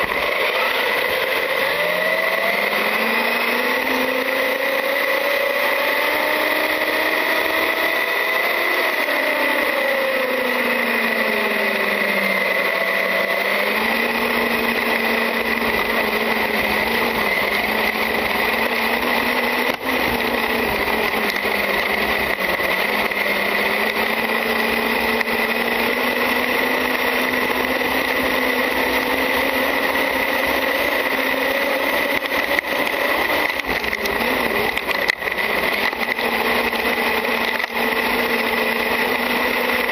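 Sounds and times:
electric motor whine: 0.0s - 39.9s
steady high-pitched whine: 0.0s - 39.9s.

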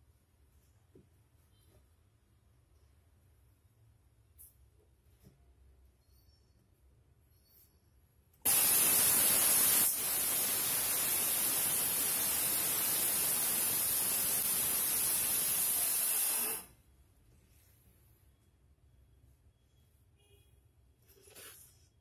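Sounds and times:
loud steady hiss: 8.5s - 16.8s.

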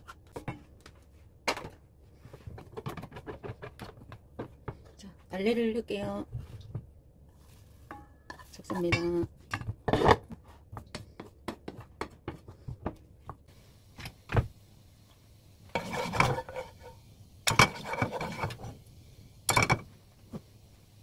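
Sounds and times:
spatula scraping frying pan: 15.7s - 18.8s.

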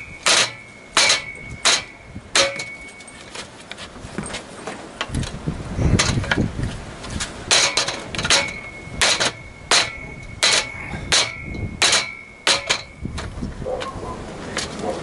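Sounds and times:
hammer striking wooden frame: 0.0s - 3.0s, 7.5s - 13.3s.

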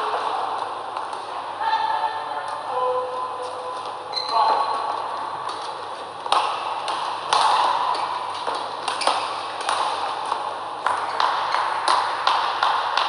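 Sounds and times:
rackets striking shuttlecock: 5.4s - 13.0s.

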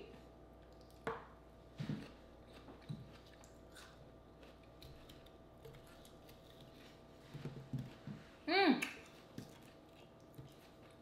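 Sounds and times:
person chewing apple: 2.0s - 8.1s, 8.8s - 11.0s.

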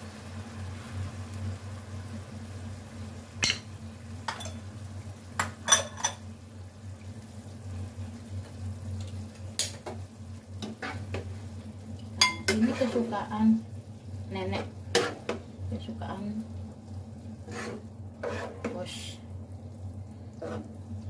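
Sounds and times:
low steady hum: 0.0s - 21.0s
utensils clinking on wok and plates: 3.4s - 3.7s, 4.3s - 4.6s, 5.4s - 6.2s, 12.2s - 13.0s.

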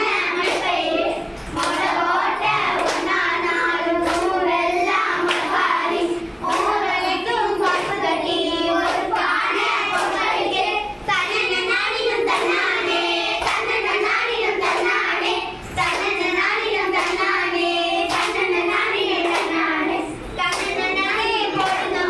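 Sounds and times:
girls singing folk song: 0.0s - 22.0s
hands clapping: 0.3s - 4.5s, 5.2s - 5.7s, 6.4s - 8.1s, 8.8s - 10.3s, 13.4s - 15.1s, 15.8s - 19.8s, 20.4s - 22.0s.

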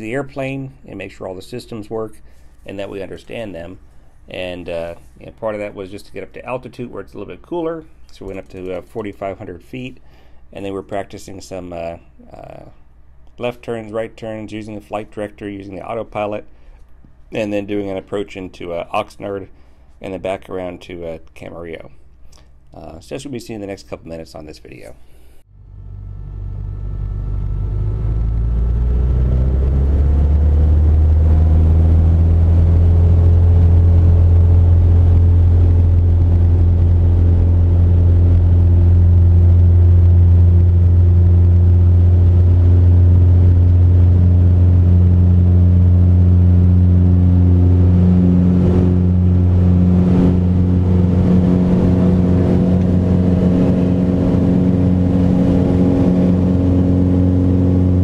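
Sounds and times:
airplane engine and propeller: 25.6s - 58.0s.

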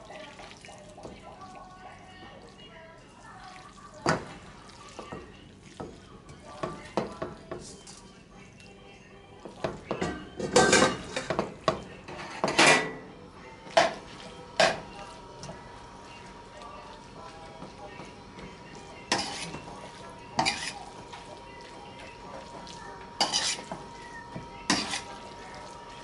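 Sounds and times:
metal spoon scraping a pan: 12.1s - 13.0s, 19.0s - 19.7s, 20.3s - 20.9s, 23.2s - 23.8s, 24.7s - 25.2s.

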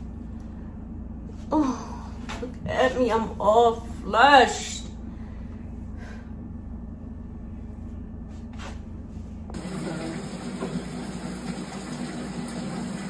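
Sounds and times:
low steady hum: 0.0s - 13.0s
water running into a bathtub: 9.6s - 13.0s.

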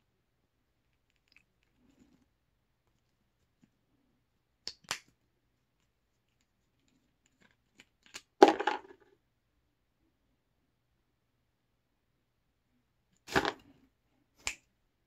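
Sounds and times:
plastic bottle clattering: 13.3s - 13.6s.

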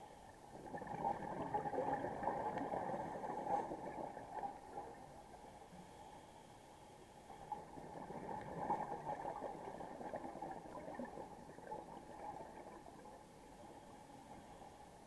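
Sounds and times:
underwater ambience: 0.0s - 15.0s
diver's exhaled bubbles gurgling: 0.5s - 5.4s, 7.4s - 13.4s.

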